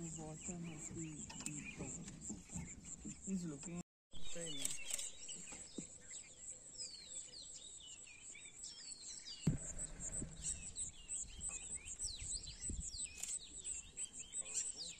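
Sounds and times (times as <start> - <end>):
birds chirping: 0.0 - 14.9
dull thump: 9.5 - 11.5.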